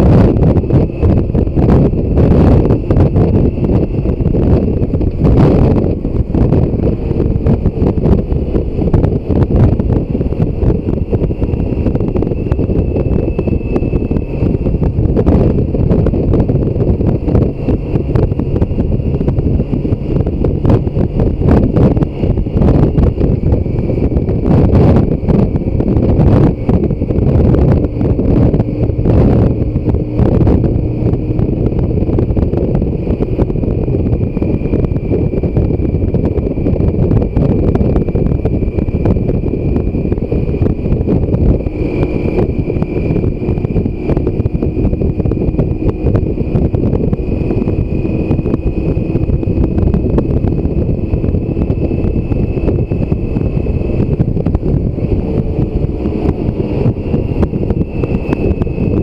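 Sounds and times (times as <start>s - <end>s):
motorcycle engine running: 0.0s - 59.0s
thin high whine: 0.0s - 59.0s
wind noise on microphone: 0.0s - 59.0s.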